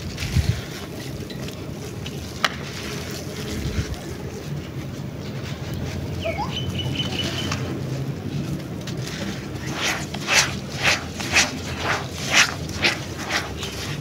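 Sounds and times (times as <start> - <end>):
wind on microphone: 0.0 - 1.1, 3.3 - 6.2
sand trickling into water: 9.1 - 14.0.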